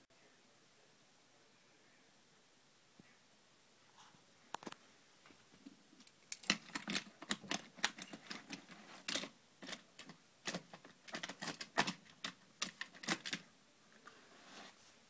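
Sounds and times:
toy car rattling on plastic: 6.3 - 13.5.

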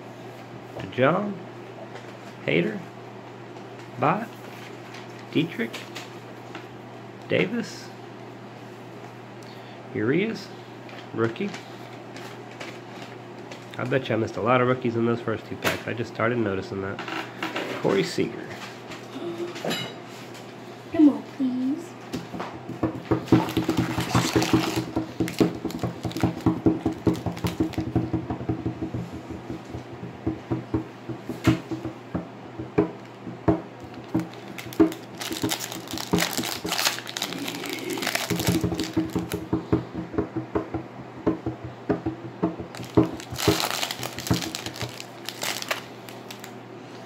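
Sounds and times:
foil wrapper crinkling: 23.3 - 27.8, 33.8 - 39.4, 42.7 - 46.5.

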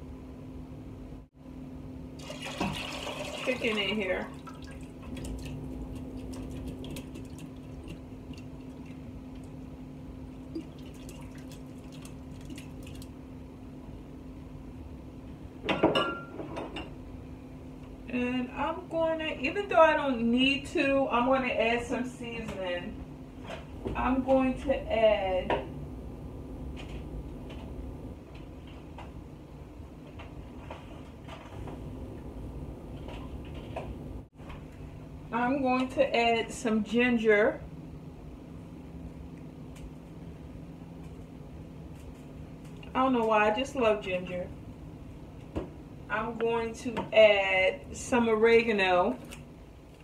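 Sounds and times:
steady low hum: 0.0 - 50.0
liquid dripping and plopping: 4.3 - 9.6, 10.3 - 13.2.

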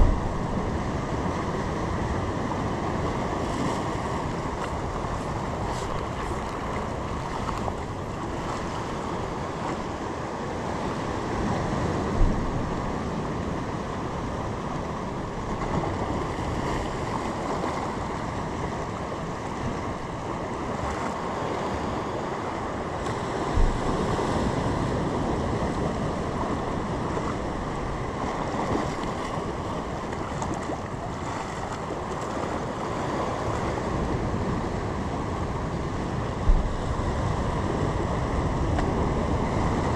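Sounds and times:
short low thumps: 0.0 - 0.6, 36.4 - 36.9
wind buffeting microphone: 0.0 - 10.0, 23.0 - 39.9
sea surf: 0.0 - 39.9.

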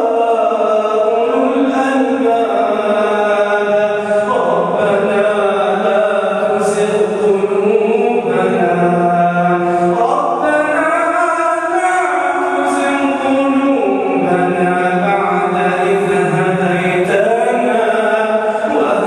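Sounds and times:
man chanting melodic recitation: 0.0 - 19.0.

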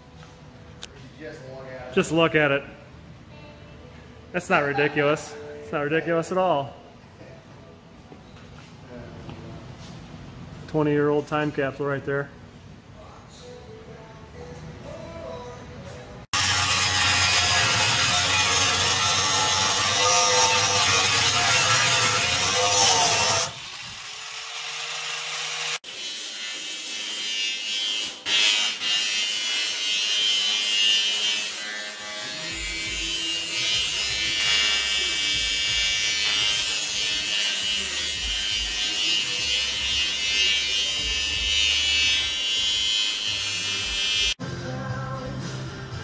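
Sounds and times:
electric arc welding buzz: 16.4 - 44.4.

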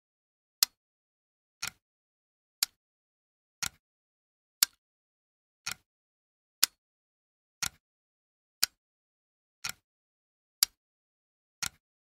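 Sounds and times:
clock ticking: 0.6 - 0.8, 1.6 - 1.8, 2.6 - 2.8, 3.6 - 3.8, 4.6 - 4.8, 5.6 - 5.9, 6.6 - 6.8, 7.6 - 7.8, 8.6 - 8.8, 9.6 - 9.8, 10.6 - 10.8, 11.6 - 11.8.

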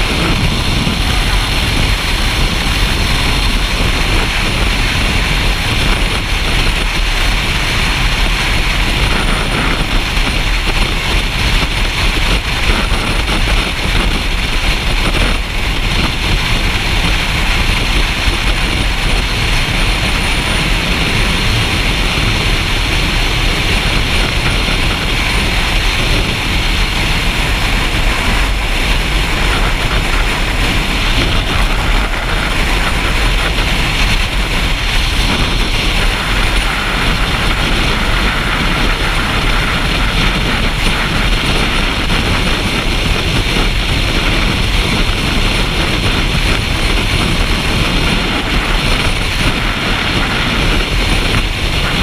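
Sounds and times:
motorcycle engine rumble: 0.0 - 52.0
wind noise: 0.0 - 52.0.

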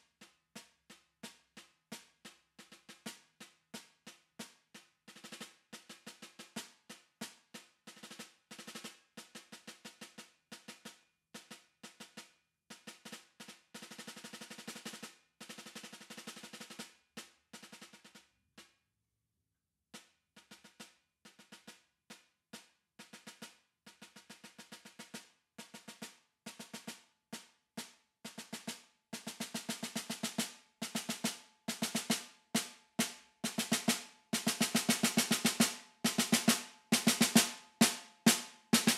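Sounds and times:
snare drum strokes and rolls: 5.1 - 6.7, 13.8 - 16.9, 23.2 - 27.0, 28.3 - 38.9.

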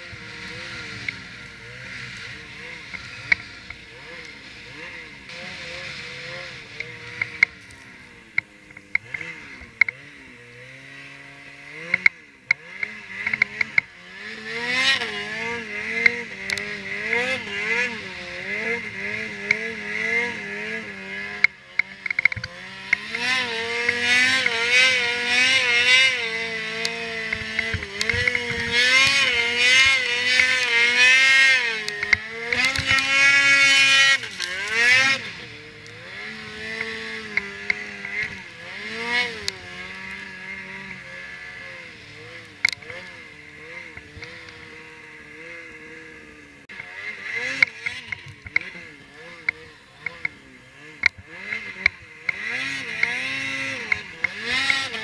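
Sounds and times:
snowmobile engine revving: 0.0 - 55.0
sharp ticks: 8.4 - 10.0, 26.8 - 33.1.

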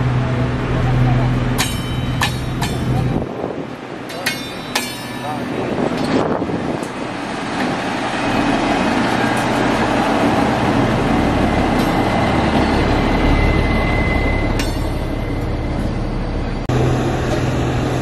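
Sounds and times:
diesel engine hum: 0.0 - 18.0
train wheels clanking over rail joints: 1.5 - 10.4, 11.3 - 13.3, 14.4 - 16.0.

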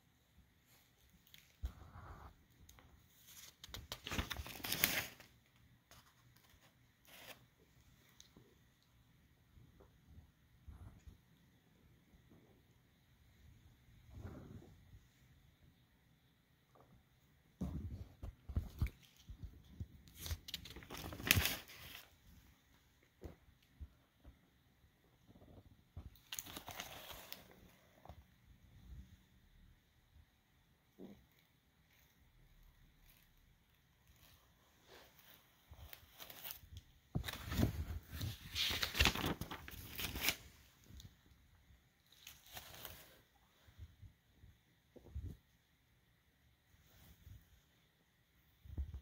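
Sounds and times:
paper rustling and crinkling: 0.6 - 8.3, 17.6 - 22.3, 25.3 - 28.2, 34.0 - 41.1, 42.0 - 43.4.

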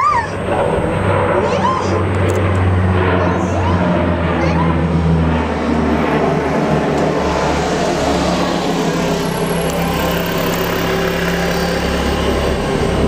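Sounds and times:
broad rushing noise: 0.0 - 13.0
engine droning: 0.0 - 13.0.

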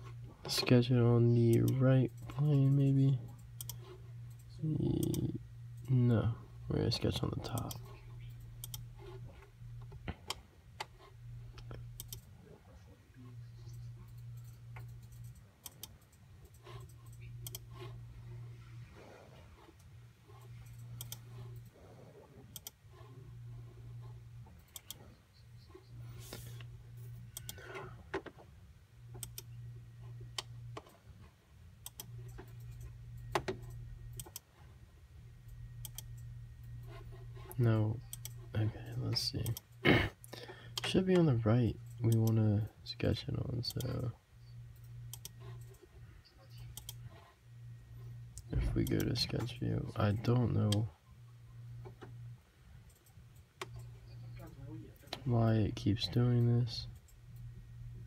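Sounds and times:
low hum: 0.0 - 58.0
computer clicks: 1.4 - 6.0, 7.4 - 8.9, 11.5 - 12.3, 13.7 - 17.7, 20.6 - 21.7, 22.5 - 22.8, 24.6 - 25.4, 27.3 - 27.7, 29.1 - 29.6, 31.8 - 34.5, 35.4 - 36.8, 37.5 - 39.8, 44.7 - 45.8, 46.5 - 47.1.

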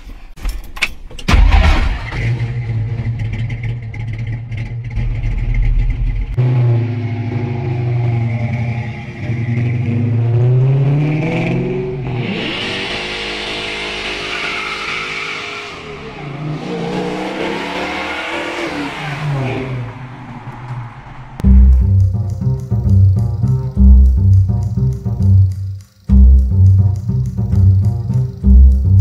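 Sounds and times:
car engine revving hard: 6.4 - 20.5.

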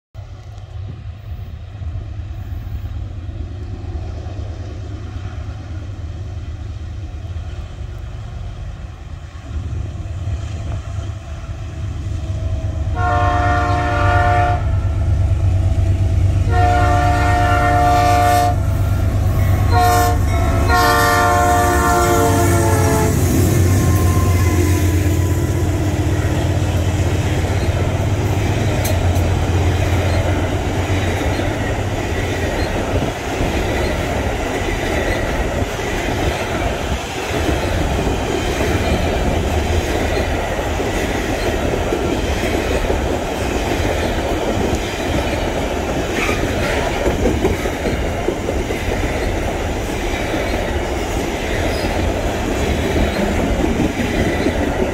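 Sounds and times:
diesel locomotive engines rumbling: 0.2 - 54.9
locomotive air horn: 12.6 - 15.1, 16.4 - 25.8.

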